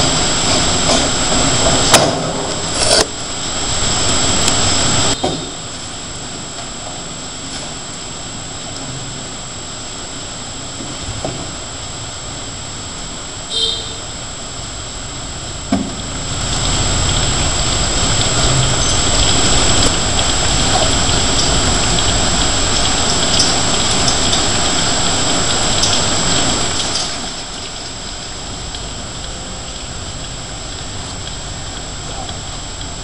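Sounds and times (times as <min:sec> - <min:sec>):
rain falling on pavement: 0:14.2 - 0:33.0.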